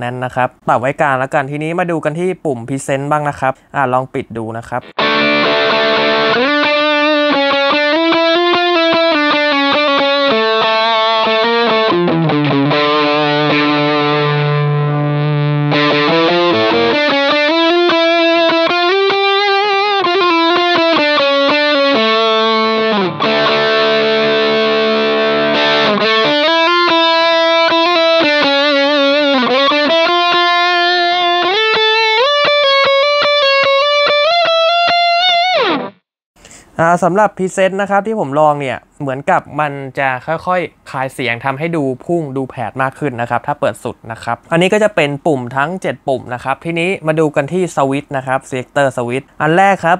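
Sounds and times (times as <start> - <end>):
distorted electric guitar lead: 4.8 - 36.1.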